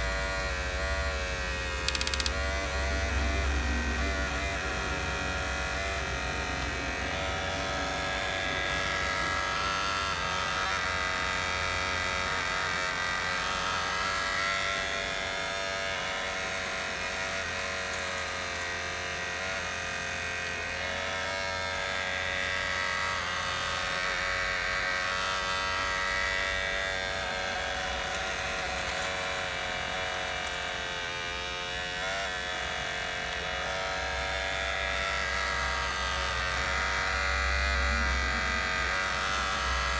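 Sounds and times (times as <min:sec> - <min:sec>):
toy excavator motors whirring: 0:00.0 - 0:39.9.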